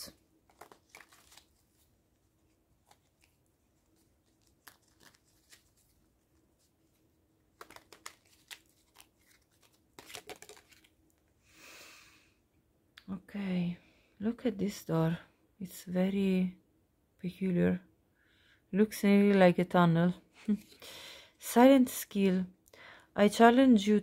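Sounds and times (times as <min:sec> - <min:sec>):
cards being shuffled: 0:00.4 - 0:06.7, 0:07.5 - 0:11.0.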